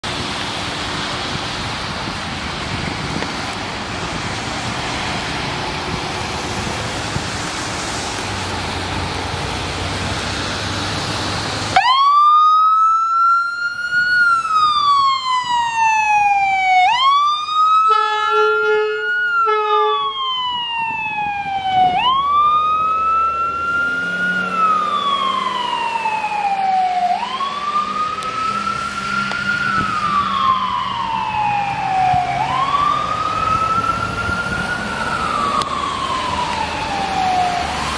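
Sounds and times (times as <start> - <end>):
ambulance siren wailing: 10.6 - 37.9
short horn blasts: 17.9 - 20.1.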